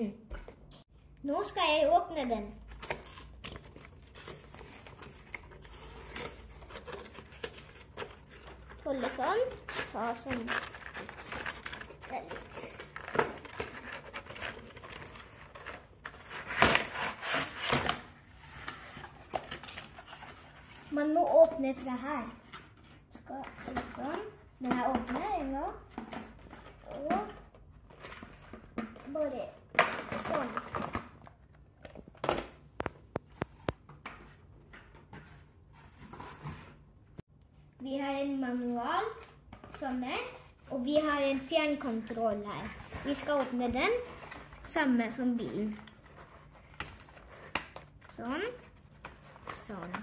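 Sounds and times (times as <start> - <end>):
cardboard scraping rustle: 3.2 - 24.3, 35.1 - 36.9
soft cardboard rustling: 3.2 - 29.5
cardboard box scraping: 15.6 - 19.2.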